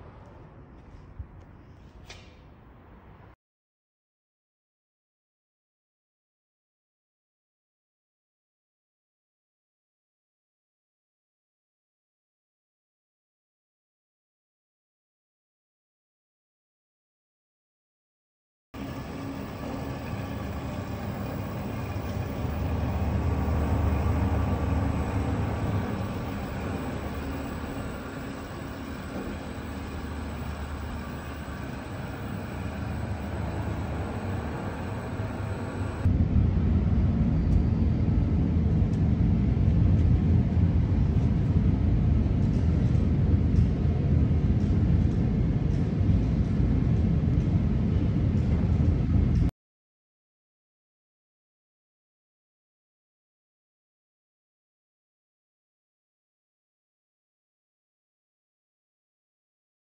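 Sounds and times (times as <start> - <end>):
machine running with deep hum: 18.8 - 49.5.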